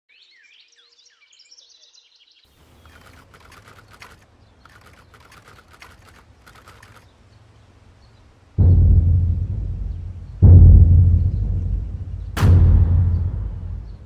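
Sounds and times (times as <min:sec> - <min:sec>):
small birds chirping: 0:00.1 - 0:08.6, 0:09.4 - 0:12.4, 0:13.1 - 0:14.0
rapid clicking: 0:02.7 - 0:07.1
low hum: 0:08.6 - 0:14.0.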